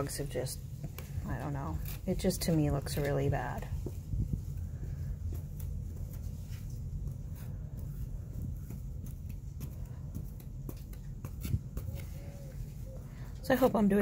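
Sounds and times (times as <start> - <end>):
low rumble: 3.3 - 13.4.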